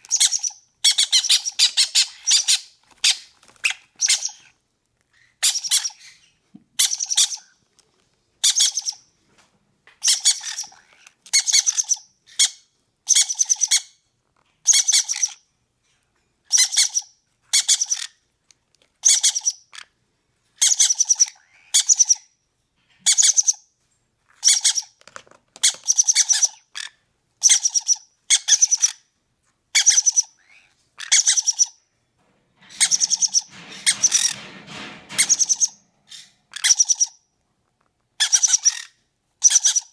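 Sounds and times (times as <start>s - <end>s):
parrot chicks begging calls: 0.0s - 4.6s, 5.2s - 7.5s, 8.4s - 9.1s, 10.0s - 14.0s, 14.6s - 15.4s, 16.5s - 18.2s, 19.0s - 19.9s, 20.6s - 22.3s, 24.4s - 25.0s, 25.6s - 29.1s, 29.7s - 31.8s, 32.6s - 37.2s, 38.2s - 39.9s.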